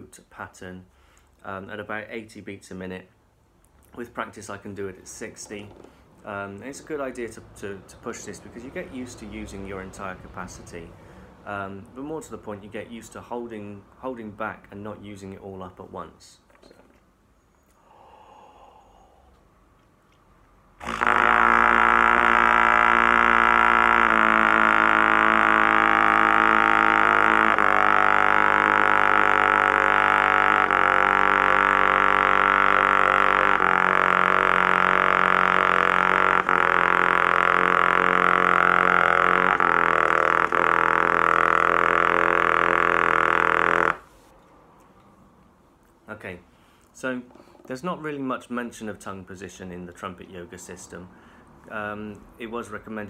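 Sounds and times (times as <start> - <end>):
trumpet playing long low notes: 20.8 - 44.1.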